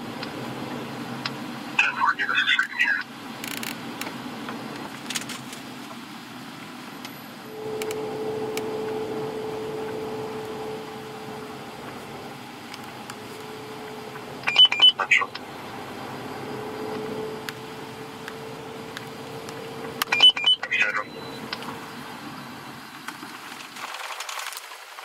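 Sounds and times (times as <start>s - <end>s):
steady hum: 0.0s - 23.4s
traffic noise: 0.0s - 25.0s.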